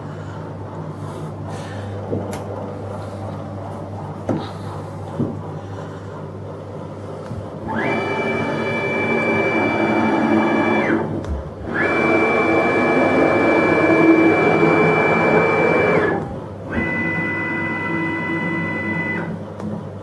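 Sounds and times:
stepper motors whining: 0:07.6 - 0:19.4.

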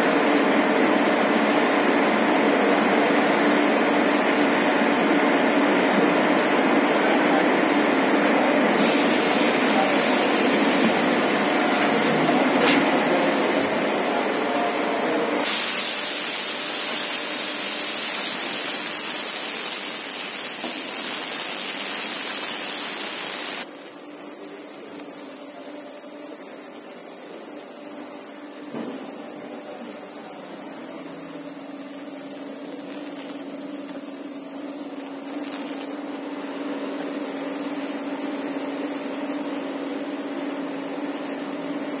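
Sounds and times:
machine hum: 0:08.7 - 0:42.0
spray jets hissing: 0:08.8 - 0:42.0.

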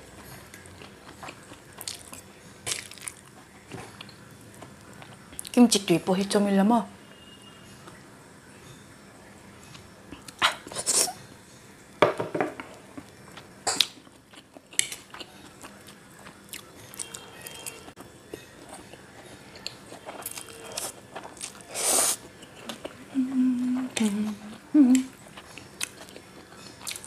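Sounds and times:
chewing: 0:00.2 - 0:05.6, 0:13.8 - 0:23.2, 0:23.8 - 0:27.0
slurping noodles: 0:21.7 - 0:22.3.

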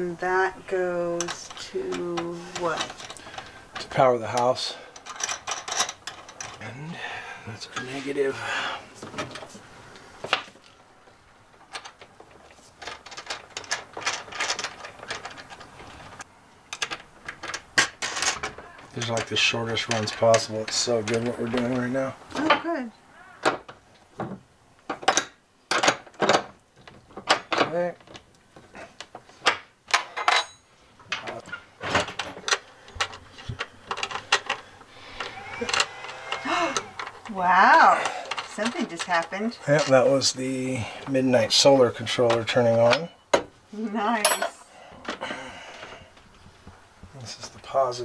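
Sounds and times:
metallic clicking and rattling: 0:00.8 - 0:06.6, 0:11.5 - 0:22.5, 0:29.0 - 0:40.1
wrench clinking on metal studs: 0:01.2 - 0:06.6, 0:29.5 - 0:31.4, 0:42.3 - 0:43.4, 0:44.1 - 0:44.6.

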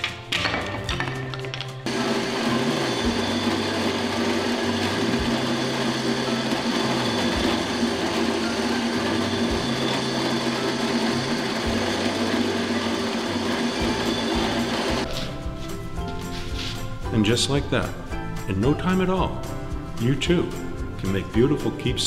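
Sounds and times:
drill bit boring into wood: 0:01.9 - 0:15.0
drill press motor hum: 0:01.9 - 0:15.1.

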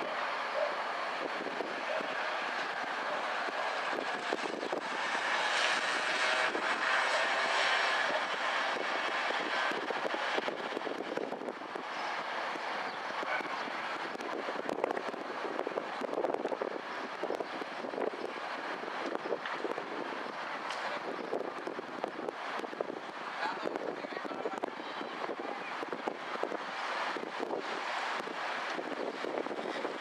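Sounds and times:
vehicle passing: 0:00.0 - 0:14.1
street traffic noise: 0:00.0 - 0:30.0.

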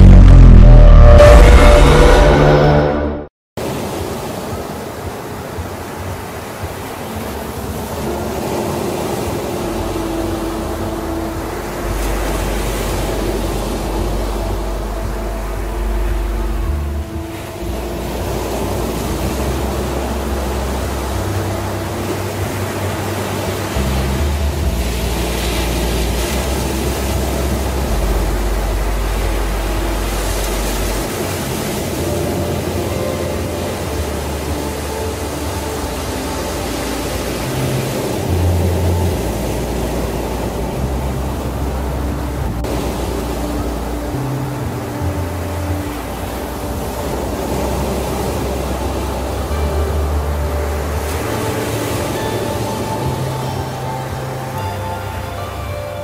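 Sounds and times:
low droning tones: 0:00.0 - 0:03.3, 0:09.6 - 0:56.0
low hum: 0:00.0 - 0:03.3
waves breaking on beach: 0:03.6 - 0:56.0.

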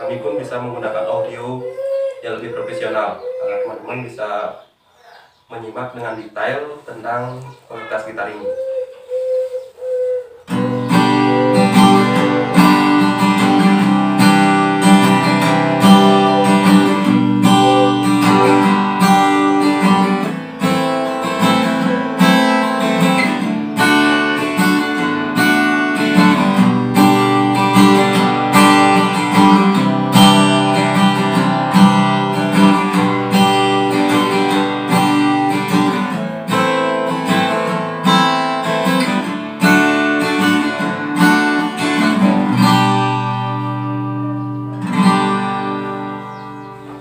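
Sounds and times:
acoustic guitar strummed: 0:10.5 - 0:47.0.

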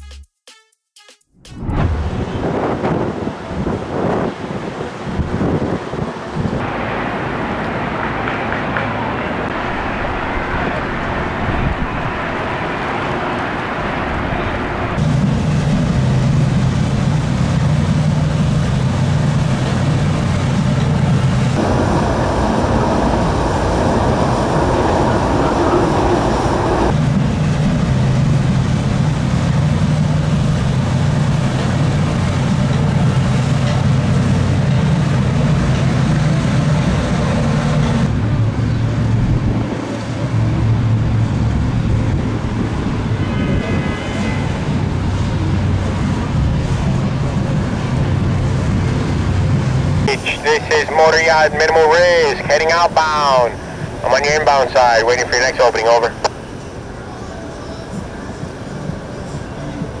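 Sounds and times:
powerboat engines droning: 0:01.9 - 1:00.0.

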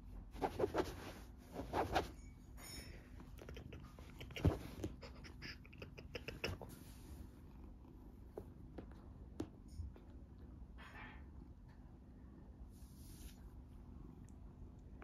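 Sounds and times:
hand rubbing fur: 0:00.3 - 0:02.2, 0:12.8 - 0:13.6
cat purring: 0:03.3 - 0:09.2.

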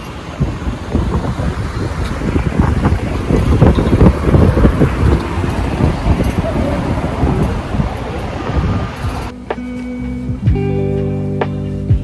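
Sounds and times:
wind buffeting microphone: 0:00.0 - 0:09.6
city street traffic: 0:00.0 - 0:12.0.

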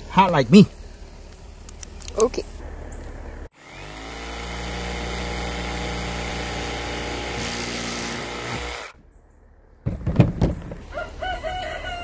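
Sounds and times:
jigsaw cutting plastic pipe: 0:03.6 - 0:09.0.

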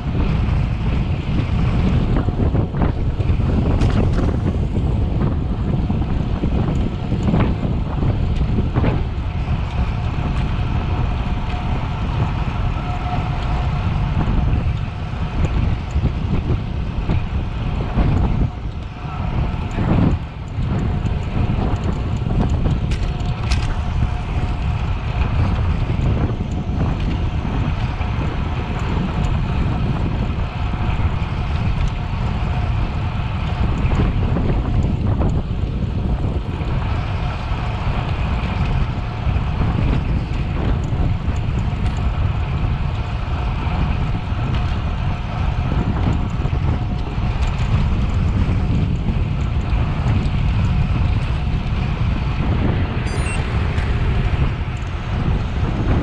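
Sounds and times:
wind rushing over microphone: 0:00.0 - 0:56.0.

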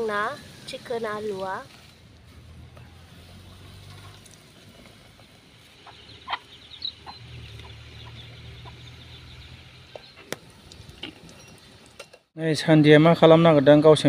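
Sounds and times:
hen clucking: 0:05.6 - 0:09.1
chicks peeping: 0:05.8 - 0:10.2.

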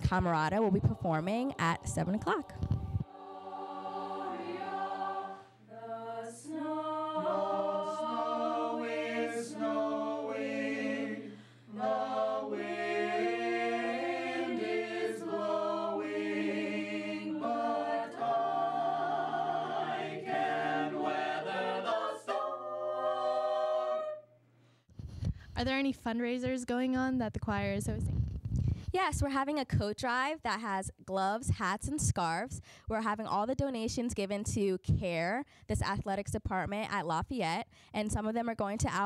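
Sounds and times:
mixed choir singing in harmony: 0:00.4 - 0:24.3.

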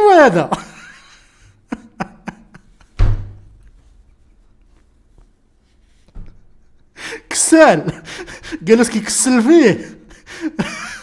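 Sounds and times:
heavy thump: 0:03.0 - 0:03.4.

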